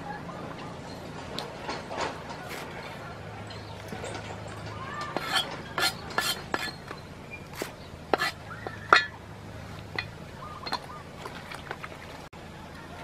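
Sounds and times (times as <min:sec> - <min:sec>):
cleaver chopping on wooden block: 0:07.6 - 0:08.4.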